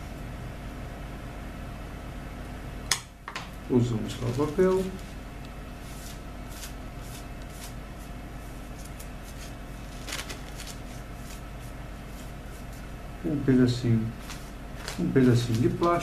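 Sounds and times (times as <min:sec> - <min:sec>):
steady low hum: 0:00.0 - 0:16.0
paper rustling: 0:04.0 - 0:05.2, 0:08.7 - 0:12.9, 0:14.1 - 0:16.0.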